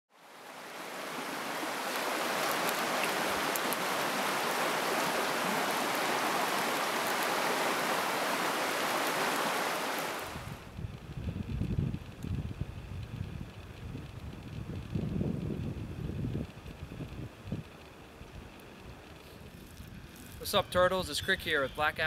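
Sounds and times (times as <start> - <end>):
river rushing over rapids: 0.2 - 10.6.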